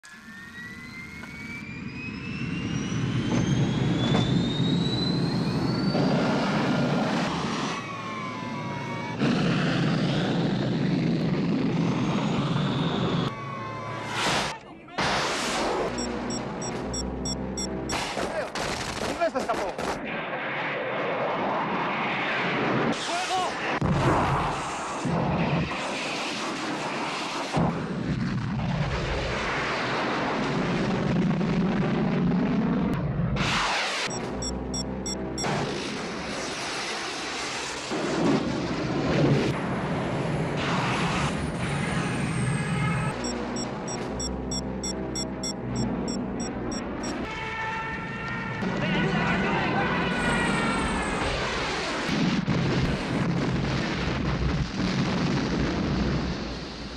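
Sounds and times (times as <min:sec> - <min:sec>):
jet engine roar: 0:00.0 - 0:16.0
quick high beeps: 0:15.9 - 0:18.0, 0:34.1 - 0:35.5, 0:43.2 - 0:47.2.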